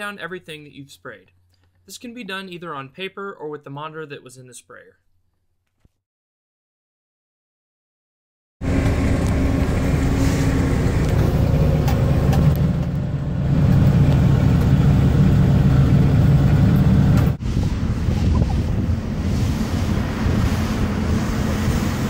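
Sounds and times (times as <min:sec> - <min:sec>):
windy noise: 0:13.5 - 0:22.0.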